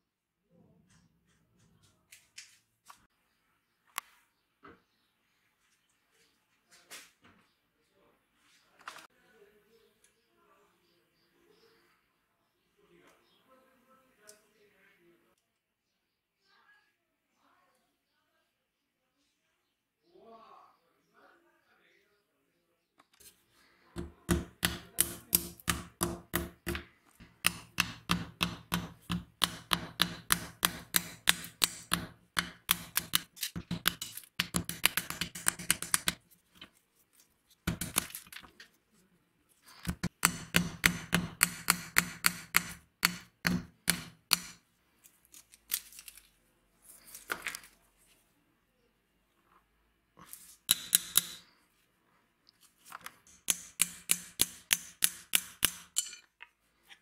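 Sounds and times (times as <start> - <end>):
hammer striking metal: 50.7 - 51.4, 53.3 - 56.3.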